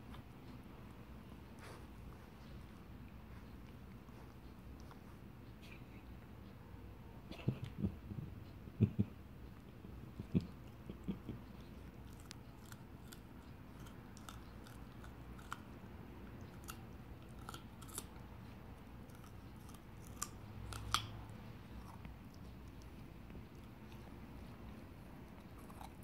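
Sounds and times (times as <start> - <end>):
puppy gnawing on carrot: 0.0 - 5.7, 8.9 - 26.0.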